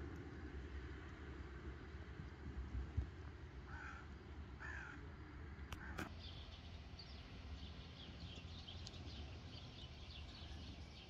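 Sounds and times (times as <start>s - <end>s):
bird cawing: 3.7s - 5.0s, 5.8s - 6.1s
small birds chirping: 5.7s - 11.0s.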